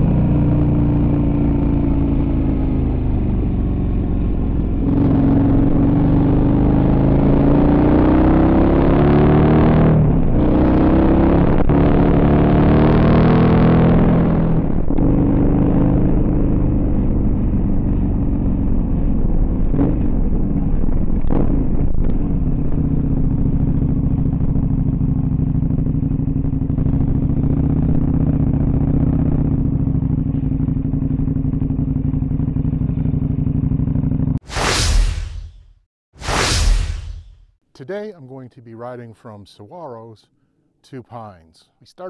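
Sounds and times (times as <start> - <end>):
motorcycle engine running: 0.0 - 7.6, 14.8 - 34.4
whoosh: 34.4 - 37.4.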